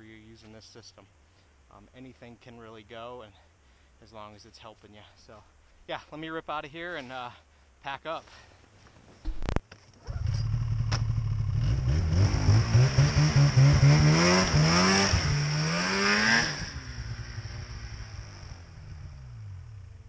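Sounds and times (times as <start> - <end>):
snowmobile engine revving: 10.1 - 20.0.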